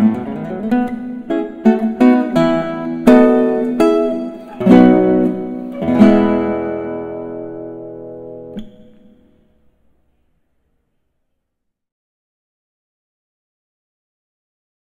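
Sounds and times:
strummed acoustic guitar: 0:00.0 - 0:09.3.

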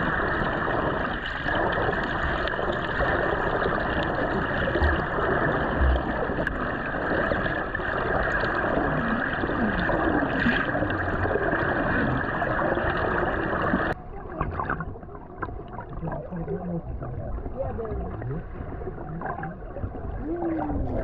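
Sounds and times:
water rushing and gurgling: 0:00.0 - 0:21.0.

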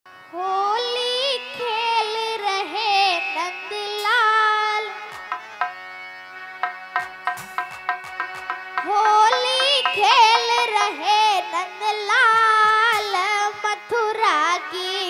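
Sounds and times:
held drone: 0:01.4 - 0:12.6
hand-drum strokes: 0:05.1 - 0:05.8, 0:06.6 - 0:11.5
girl singing wordless phrase: 0:08.9 - 0:15.0.

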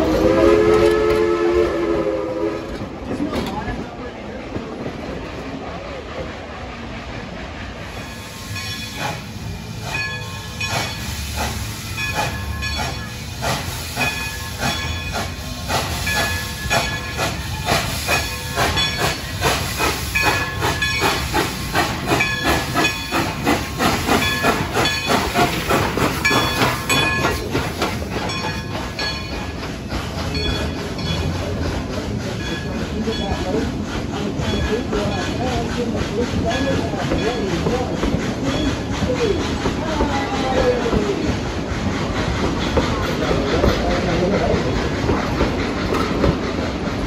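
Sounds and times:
steam locomotive exhaust chuffs: 0:00.0 - 0:03.1, 0:04.9 - 0:47.0
hissing steam: 0:00.0 - 0:47.0.

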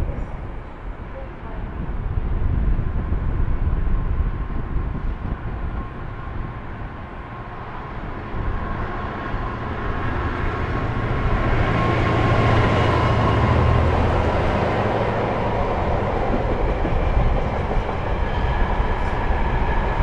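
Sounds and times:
diesel locomotive drone: 0:00.0 - 0:20.0
rail rumble: 0:00.0 - 0:20.0.

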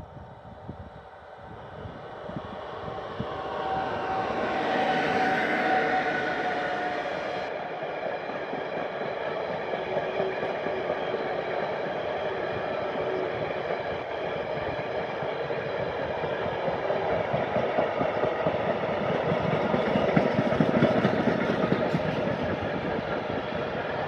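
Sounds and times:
faint steady tones: 0:00.0 - 0:08.2
freight train wheels rolling on rails: 0:00.0 - 0:24.0.

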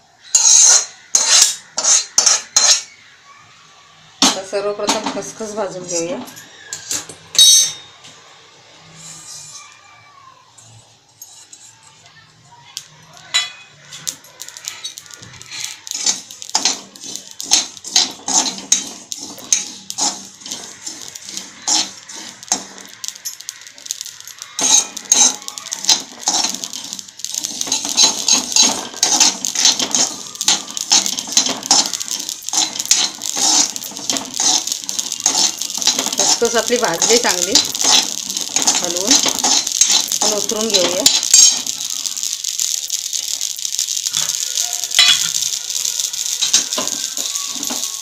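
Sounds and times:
spatula scraping a metal pan: 0:00.2 - 0:02.9, 0:13.4 - 0:41.8, 0:44.2 - 0:47.9.

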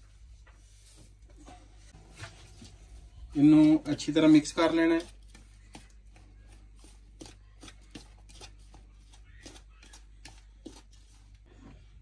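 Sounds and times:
fingers rustling dry flour: 0:02.1 - 0:11.5.

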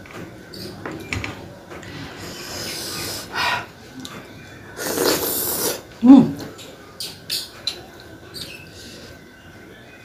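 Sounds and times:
mouth slurping and sucking: 0:04.8 - 0:05.8.

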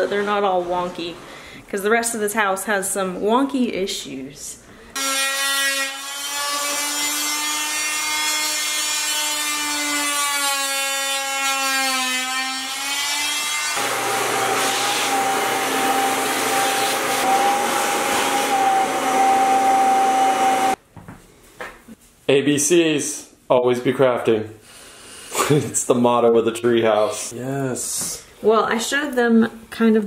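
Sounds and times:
shop vacuum running: 0:13.7 - 0:20.8
air compressor whine: 0:13.8 - 0:20.8.

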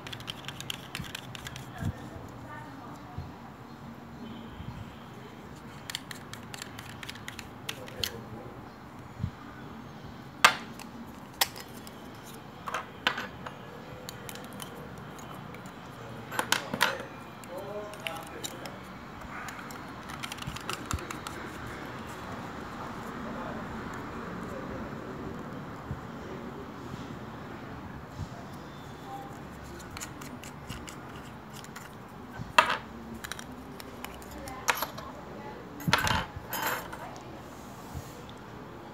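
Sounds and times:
plastic and metal parts clicking: 0:19.5 - 0:21.4.

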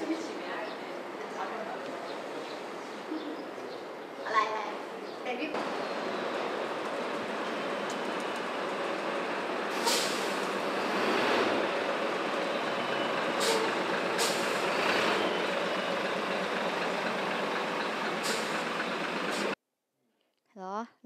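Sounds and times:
diesel bus engine running: 0:05.6 - 0:19.6
air brake hisses: 0:09.7 - 0:10.4, 0:13.4 - 0:14.7, 0:18.2 - 0:18.6.

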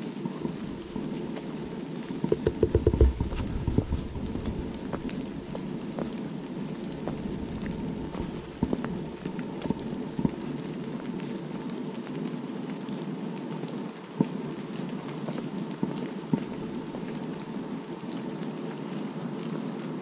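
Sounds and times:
sharp raindrop taps: 0:00.0 - 0:20.0
steady rain on foliage: 0:00.0 - 0:20.0.

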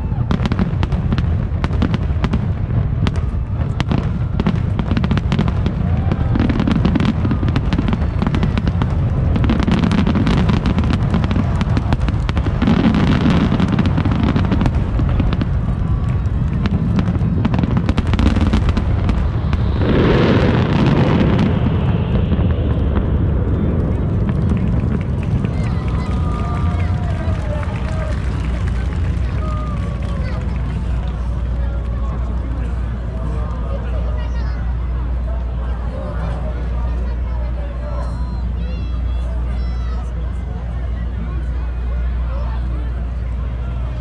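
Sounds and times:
fireworks bursts and crackling: 0:00.0 - 0:35.2
heavy low rumble: 0:00.0 - 0:44.0.

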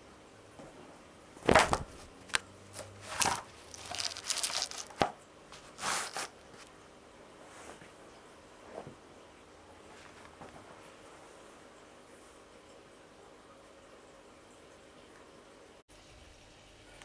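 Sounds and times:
carpet scraping and rustling: 0:02.8 - 0:06.7.

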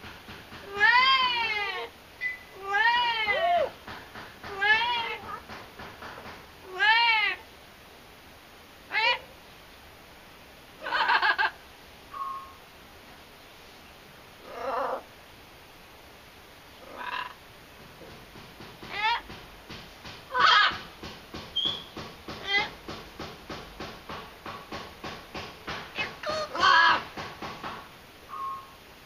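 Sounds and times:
parrot calling: 0:14.4 - 0:15.1, 0:16.8 - 0:17.4, 0:20.3 - 0:20.9, 0:21.5 - 0:22.8, 0:26.0 - 0:27.2.

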